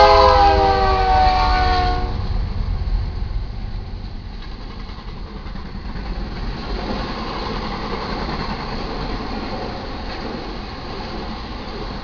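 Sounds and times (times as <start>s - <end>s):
train wheels rumbling on rails: 0.0s - 12.0s.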